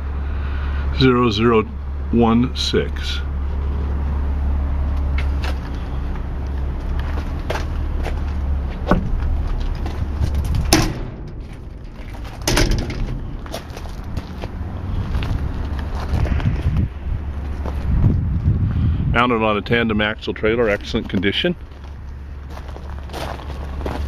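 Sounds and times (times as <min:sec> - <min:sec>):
low rumble: 0:02.9 - 0:23.1
metal door knocks and clanks: 0:08.8 - 0:09.3, 0:10.2 - 0:13.6.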